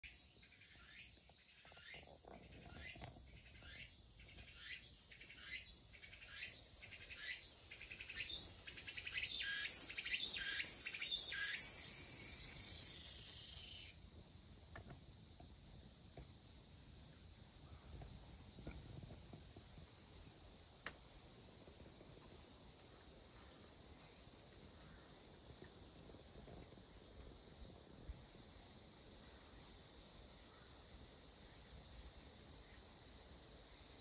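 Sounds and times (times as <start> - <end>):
insect buzzing: 0.0 - 14.0.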